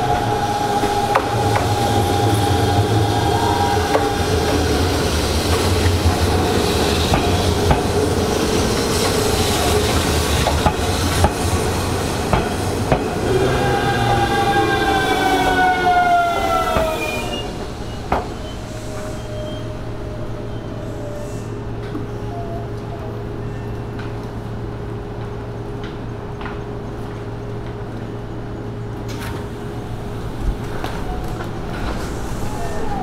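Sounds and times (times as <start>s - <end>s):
train motor whine: 0.0s - 22.9s
train wheels clicking over rail joints: 0.2s - 13.4s.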